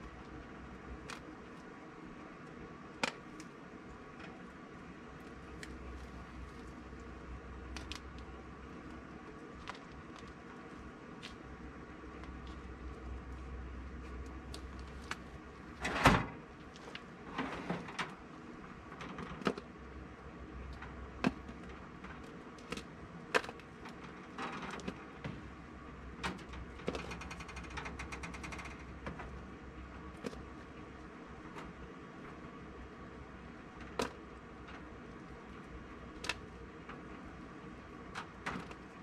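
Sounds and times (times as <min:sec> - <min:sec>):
steady low hum: 0:00.0 - 0:39.0
metal racks and tray clinking: 0:15.7 - 0:16.4, 0:17.2 - 0:18.2.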